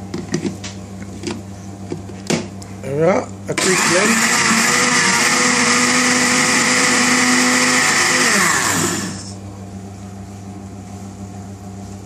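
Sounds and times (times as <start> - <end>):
blender running: 3.5 - 9.4
blender motor spinning down: 3.6 - 9.4.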